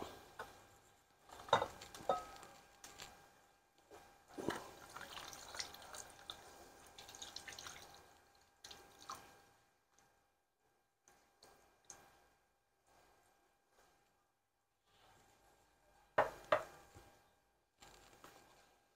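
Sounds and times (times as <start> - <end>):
juice pouring and dripping: 4.3 - 10.1.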